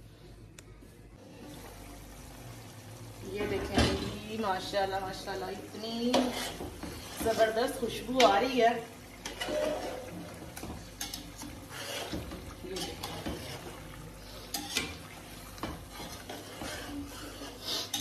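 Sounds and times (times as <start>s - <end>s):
chicken sizzling: 1.3s - 18.0s
metal spoon scraping pot: 6.1s - 7.6s, 9.2s - 10.1s, 14.4s - 15.0s, 16.0s - 18.0s.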